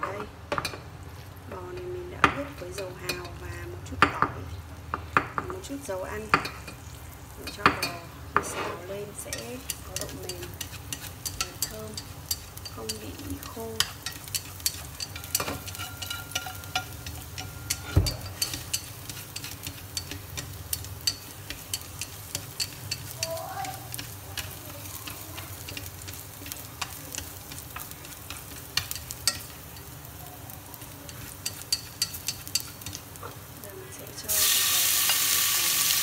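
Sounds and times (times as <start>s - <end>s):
garlic sizzling in oil: 0.5s - 36.0s
chopsticks clicking on metal pot: 9.2s - 30.0s, 31.1s - 33.3s.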